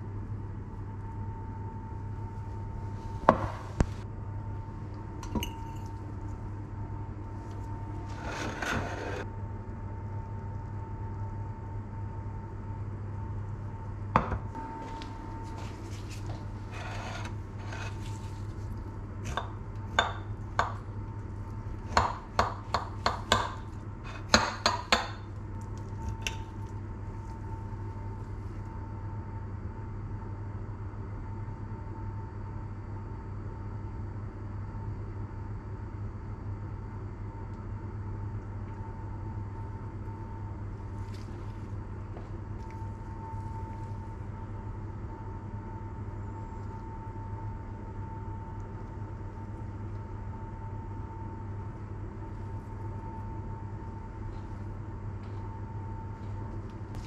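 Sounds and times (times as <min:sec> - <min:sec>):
steady low hum: 0:00.0 - 0:57.0
cutlery scraping a ceramic plate: 0:08.0 - 0:09.2, 0:16.1 - 0:18.4.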